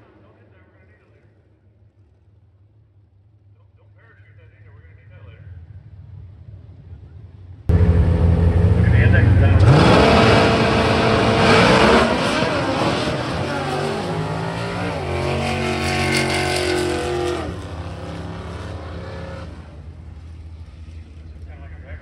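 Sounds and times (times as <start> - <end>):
drag racing cars accelerating: 5.0 - 22.0.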